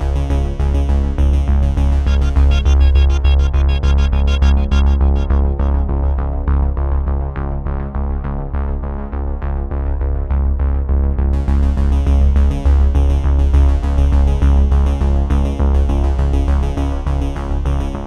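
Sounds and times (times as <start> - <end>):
electronic music with heavy bass: 0.0 - 7.2.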